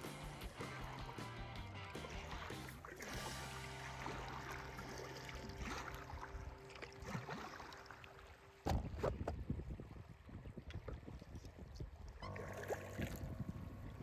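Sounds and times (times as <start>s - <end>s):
rush of water: 0.0s - 13.6s
water lapping: 0.0s - 14.0s
paddle strokes: 2.0s - 9.5s.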